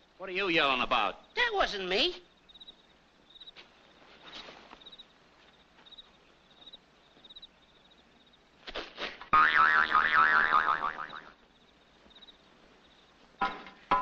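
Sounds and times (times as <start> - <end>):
soft scuffles: 3.5 - 7.3
warbling comedy boing effect: 9.4 - 11.3.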